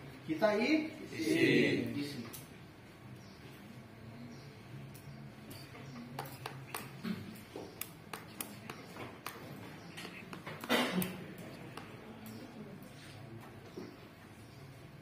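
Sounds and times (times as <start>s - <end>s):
light clicks and taps: 6.2s - 12.5s.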